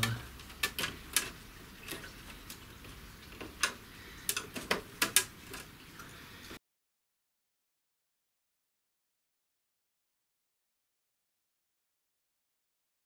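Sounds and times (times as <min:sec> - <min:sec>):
small clicks and taps of tool: 0:00.0 - 0:05.7.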